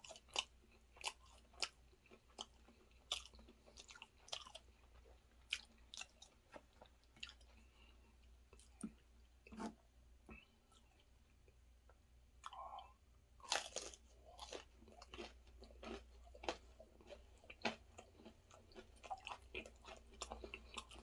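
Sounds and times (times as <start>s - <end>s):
person crunching fried pastry: 0.0s - 7.6s, 13.4s - 21.0s
crunchy chewing: 0.0s - 11.0s, 13.4s - 21.0s
mouth sounds of eating: 12.4s - 21.0s.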